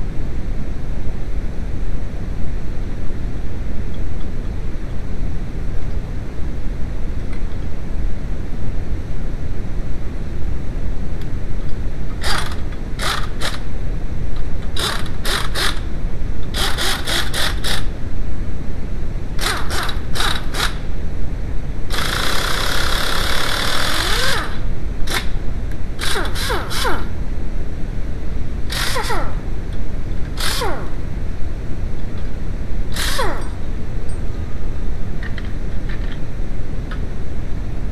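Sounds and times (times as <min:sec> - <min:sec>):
steady low rumble: 0:27.0 - 0:37.9.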